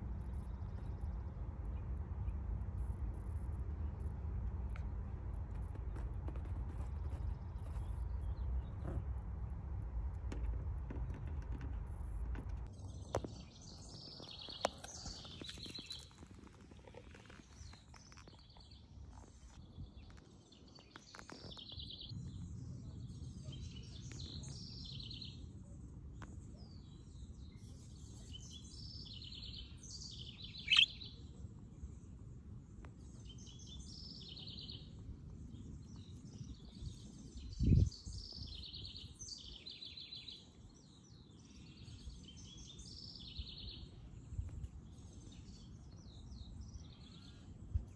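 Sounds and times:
low outdoor rumble: 0.0s - 39.6s
small birds chirping: 11.2s - 47.9s
sharp high bird call: 30.7s - 31.0s.

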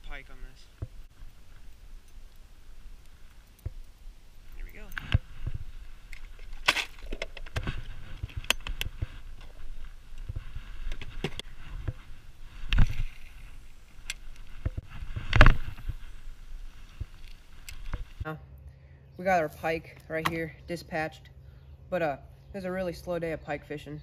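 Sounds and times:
fishing gear clicking and knocking: 6.1s - 9.5s.

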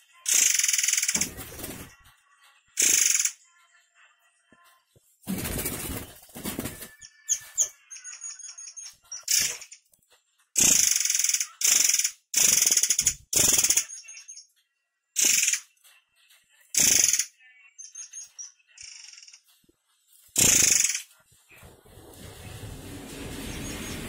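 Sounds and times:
bird giving harsh rasping calls: 20.4s - 21.0s.

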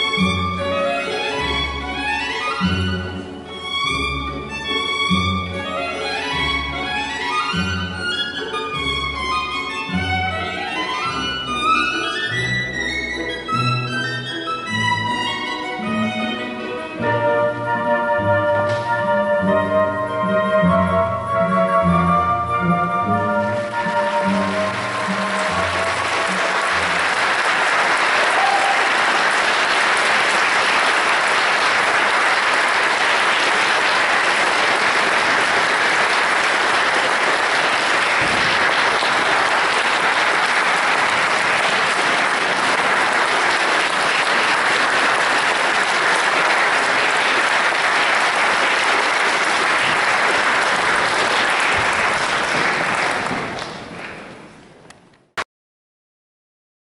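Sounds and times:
audience applauding: 23.4s - 54.5s.

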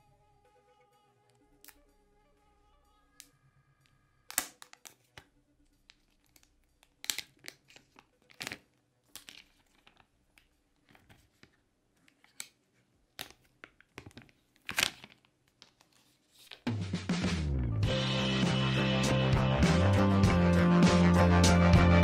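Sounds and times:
plastic film peeling: 5.9s - 11.5s, 12.1s - 16.6s.

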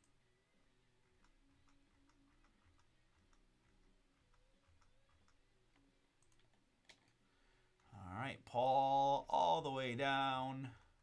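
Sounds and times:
mouse scroll wheel clicking: 1.0s - 5.4s.

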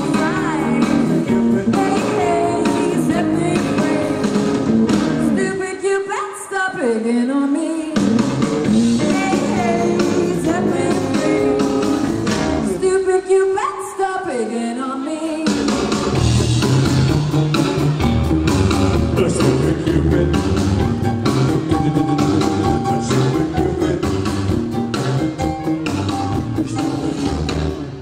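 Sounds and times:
live rock and roll band: 0.0s - 5.8s, 7.9s - 13.0s, 15.3s - 28.0s
woman singing lead: 0.0s - 8.1s, 9.0s - 15.9s.

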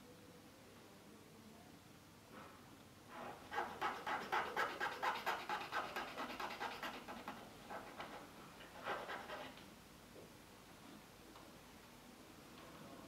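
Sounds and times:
hand file scraping wood: 3.1s - 9.6s.

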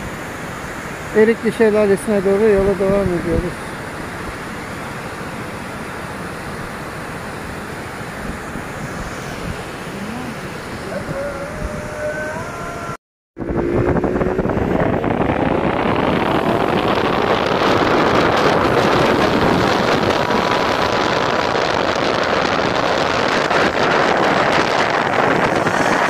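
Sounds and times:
road noise: 0.0s - 26.0s
wind rushing over microphone: 0.0s - 26.0s
scooter engine accelerating: 13.4s - 26.0s.

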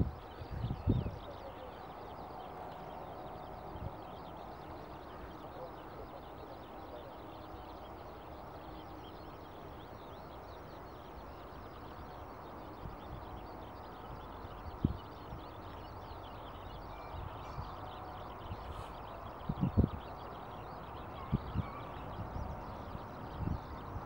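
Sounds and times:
birds twittering: 0.0s - 24.0s.

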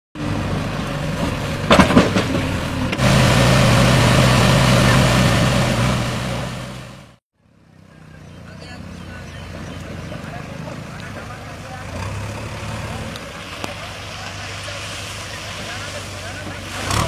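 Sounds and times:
diesel engine running: 0.2s - 7.2s
water splashing: 9.8s - 17.0s.

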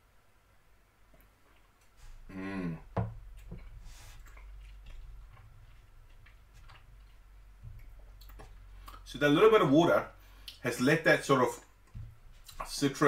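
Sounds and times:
person humming mmm: 2.3s - 3.0s.

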